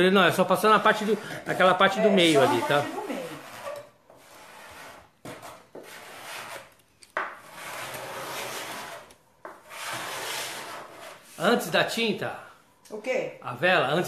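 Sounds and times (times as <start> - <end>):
knife scraping paint off wood: 2.5 - 11.4.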